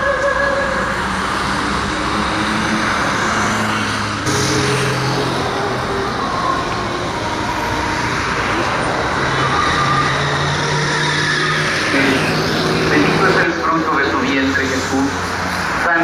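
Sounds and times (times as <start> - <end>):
city street traffic: 0.0 - 16.0.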